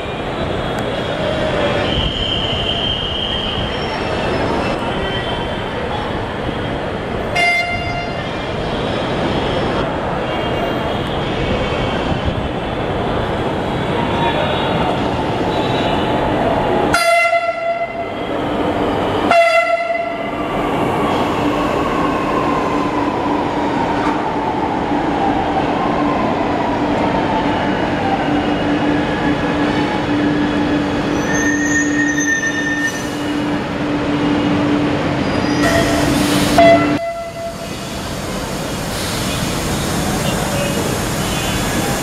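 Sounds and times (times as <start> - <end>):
train horn blasts: 16.9 - 18.1, 19.3 - 20.2, 35.6 - 37.6.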